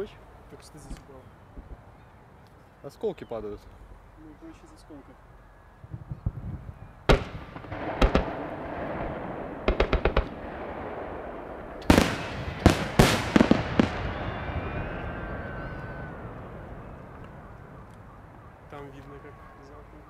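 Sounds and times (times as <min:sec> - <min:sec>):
firework shells bursting: 0:07.1 - 0:14.4.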